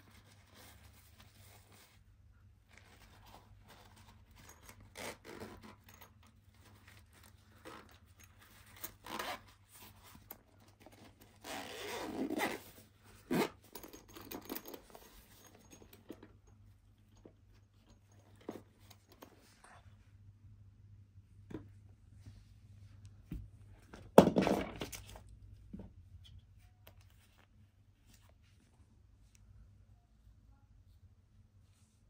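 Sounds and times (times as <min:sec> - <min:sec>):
case rustling and scraping: 0:02.8 - 0:16.4, 0:17.1 - 0:19.7.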